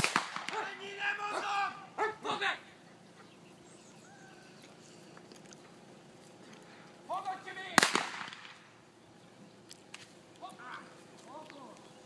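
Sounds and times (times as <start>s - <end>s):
dog barking: 2.0s - 2.3s.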